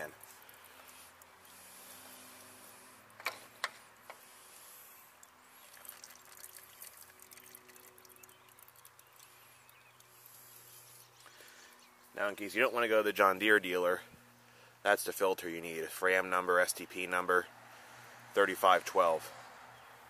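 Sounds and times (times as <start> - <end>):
oil trickling: 0.0 - 3.0, 4.2 - 11.8.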